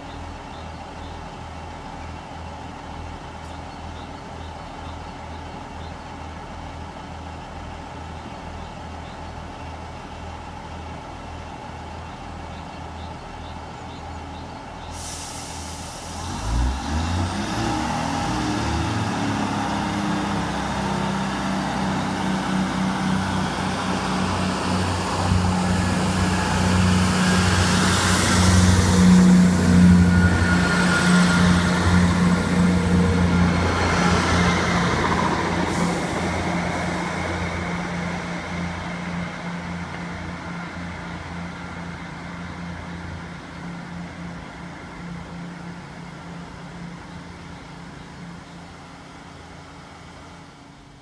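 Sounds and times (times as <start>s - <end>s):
diesel train engines revving: 0.0s - 51.0s.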